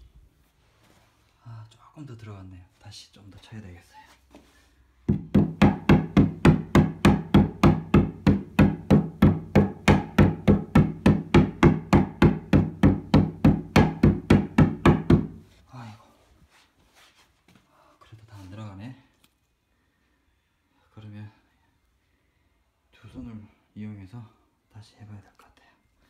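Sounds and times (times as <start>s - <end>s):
mallet knocking wooden panel: 5.1s - 15.4s.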